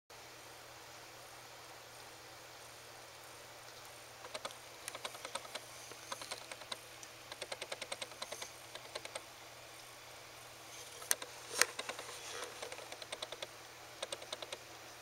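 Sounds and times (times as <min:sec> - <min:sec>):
quick small clicks: 0:04.3 - 0:09.2, 0:11.0 - 0:14.6.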